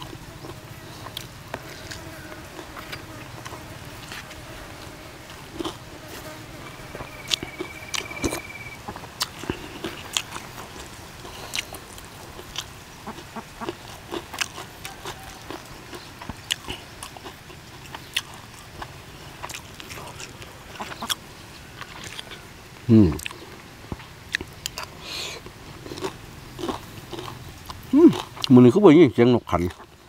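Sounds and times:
chewing and crunching: 0.0s - 22.4s, 23.0s - 30.0s.

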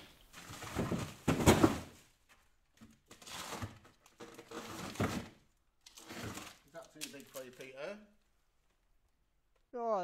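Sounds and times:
plastic bags crinkling: 3.1s - 8.0s.

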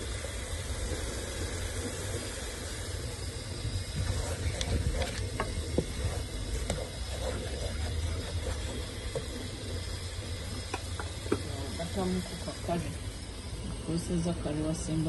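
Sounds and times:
low rumble and hiss: 0.0s - 15.0s
wooden spoon stirring in a pot: 3.6s - 13.8s
spoon scraping and knocking pot: 4.0s - 9.4s.

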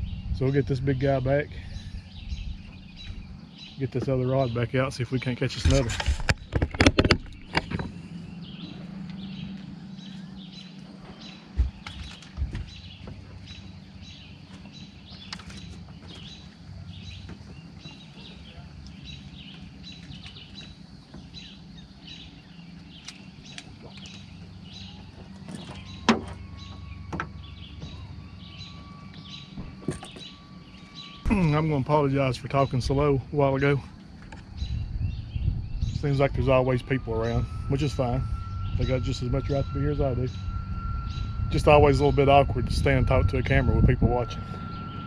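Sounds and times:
high bird chirp: 0.0s - 5.4s, 7.2s - 45.0s
steady low hum: 0.0s - 45.0s
knocks and thumps in a boat: 1.9s - 36.2s
faint rising tone: 21.5s - 45.0s.

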